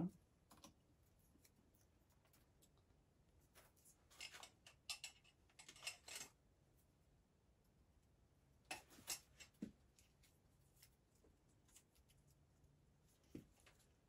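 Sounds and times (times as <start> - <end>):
faint wire clicks and leaf rustles: 0.4 - 6.4, 8.7 - 14.0.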